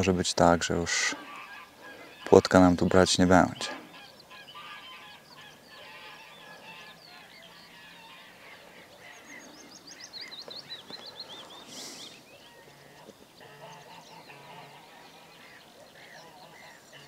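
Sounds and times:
birds chirping: 0.0 - 17.0.

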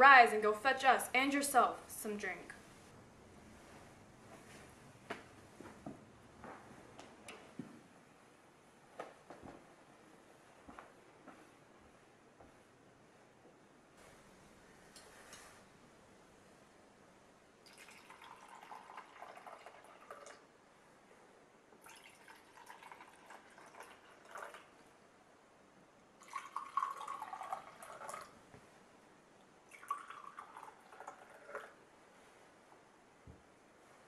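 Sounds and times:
liquid pouring into mugs: 17.6 - 20.5, 21.8 - 24.8, 26.2 - 28.4, 29.6 - 31.8.

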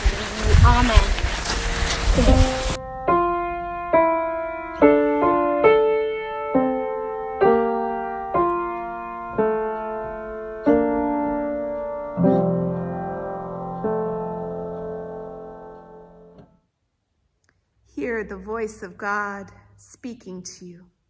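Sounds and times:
slow piano melody: 0.0 - 16.7.

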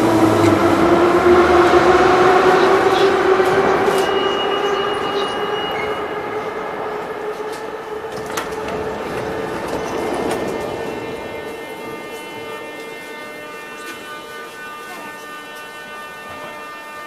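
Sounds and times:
steady train hum: 0.0 - 17.0
train braking running noise: 0.0 - 17.0
thin high brake squeal: 3.9 - 6.4.

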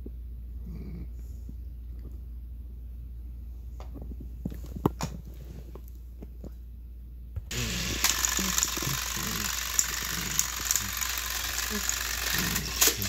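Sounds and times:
toy train motors whirring: 7.5 - 13.0.

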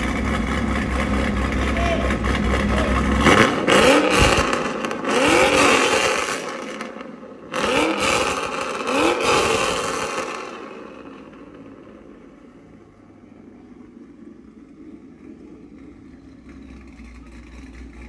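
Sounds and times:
engine revving: 0.0 - 11.9.

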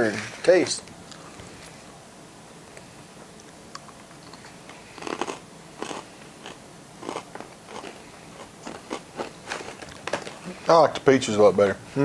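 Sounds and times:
person chewing crunchy fruit: 3.7 - 10.6.

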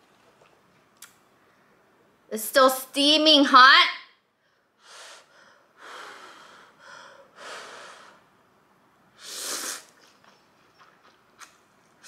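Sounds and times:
person slurping noodles: 9.2 - 11.5.

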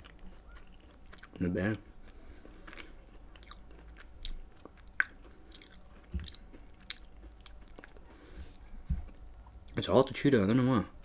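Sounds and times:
chewing with wet mouth clicks: 0.0 - 9.8.

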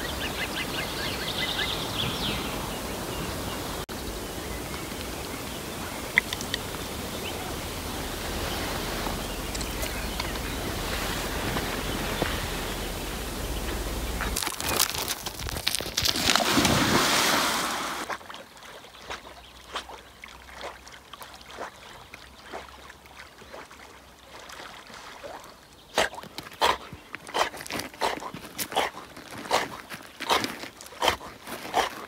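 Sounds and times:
dog swimming splashes: 15.7 - 32.0.

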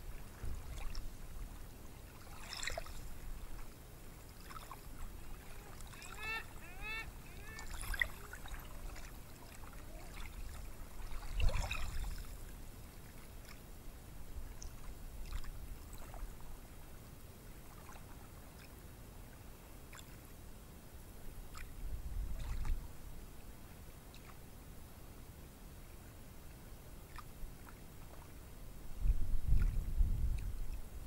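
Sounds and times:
waves washing onto beach: 0.0 - 12.6.

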